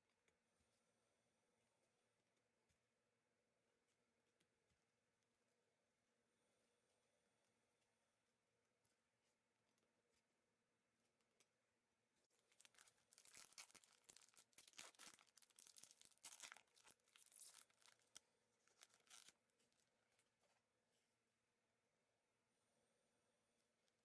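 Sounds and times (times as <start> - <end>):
plastic wrapper tearing: 12.5 - 19.4.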